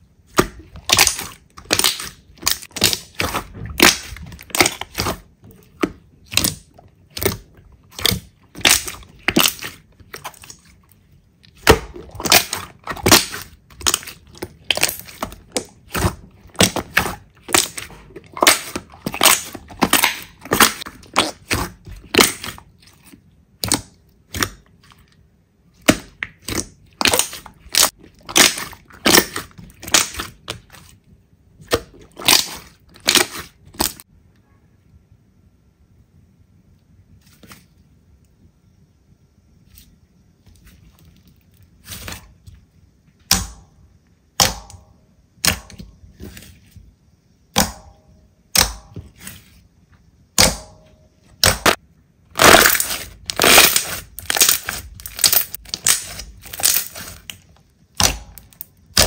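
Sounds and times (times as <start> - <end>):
slime crackling when squeezed: 51.4 - 57.4.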